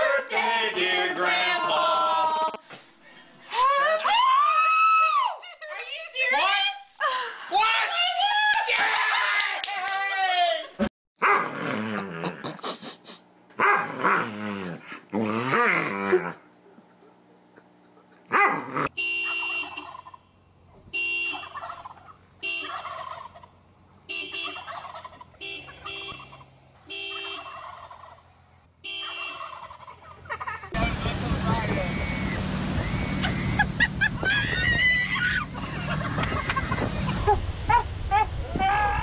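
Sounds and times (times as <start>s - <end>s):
short car alarm-like beeps: 19.0s - 20.0s, 28.8s - 29.4s, 31.5s - 34.6s
turkeys gobbling: 19.2s - 20.3s, 21.3s - 23.6s, 24.3s - 28.3s, 29.0s - 37.8s.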